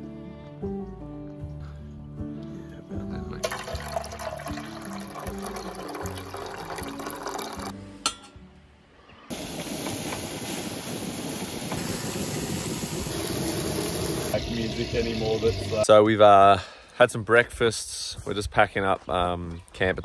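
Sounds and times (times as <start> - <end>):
background music: 0.0 - 9.3
water pouring into metal mug: 3.4 - 7.7
gas stove hissing: 9.3 - 15.9.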